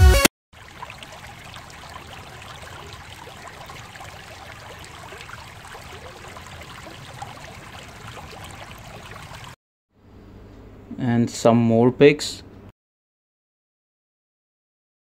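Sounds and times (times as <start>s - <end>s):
water splashes and trickles: 0.5s - 9.6s
stream flowing over rocks: 0.6s - 9.6s.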